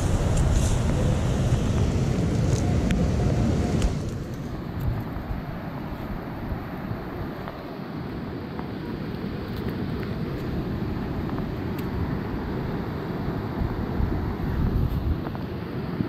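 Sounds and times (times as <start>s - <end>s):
strong wind buffeting microphone: 0.0s - 7.6s, 9.9s - 16.0s.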